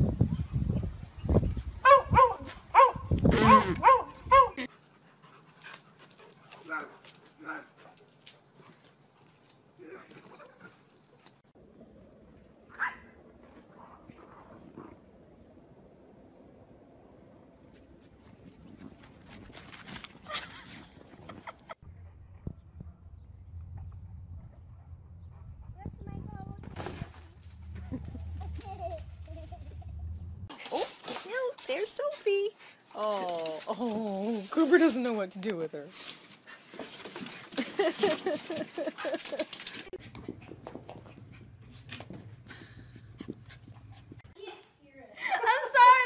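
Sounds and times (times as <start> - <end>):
low steady hum: 21.8 - 30.5
low steady rumble: 21.8 - 30.5.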